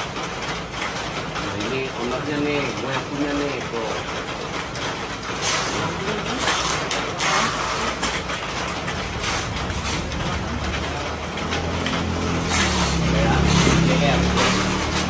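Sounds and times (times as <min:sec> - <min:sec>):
background traffic: 0:00.0 - 0:15.0.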